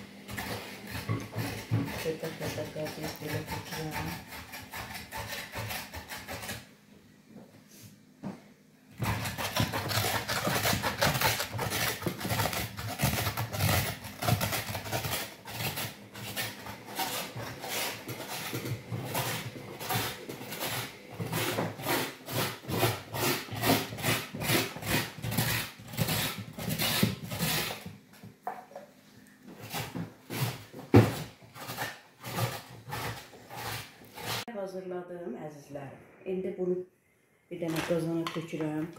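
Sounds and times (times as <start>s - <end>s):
knife rasping pumpkin flesh: 0.2s - 6.7s, 9.0s - 27.9s, 29.6s - 34.5s.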